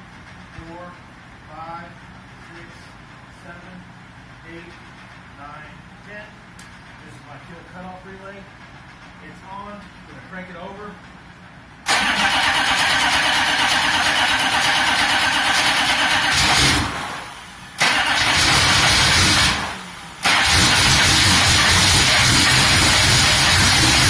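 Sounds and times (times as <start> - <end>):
diesel engine cranking: 11.8 - 24.0
engine firing roughly: 11.8 - 24.0.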